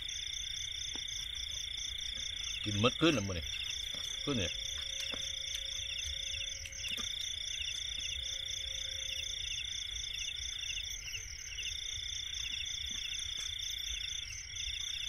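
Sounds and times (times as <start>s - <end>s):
crickets trilling: 0.0s - 15.0s
rapid insect chirps: 0.0s - 15.0s.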